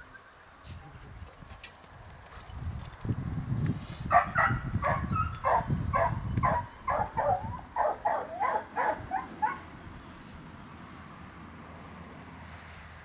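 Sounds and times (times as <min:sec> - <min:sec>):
puppy barking: 0:04.1 - 0:09.7.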